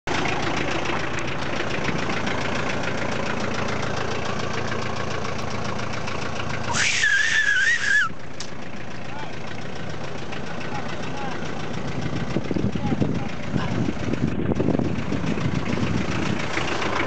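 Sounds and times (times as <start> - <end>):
off-road engine running: 0.0 - 17.0
person yelling: 6.7 - 8.1.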